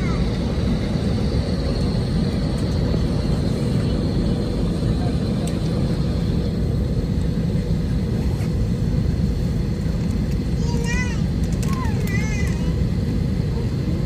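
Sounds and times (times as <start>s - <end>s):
high engine whine: 0.0s - 14.0s
jet engines rumbling: 0.0s - 14.0s.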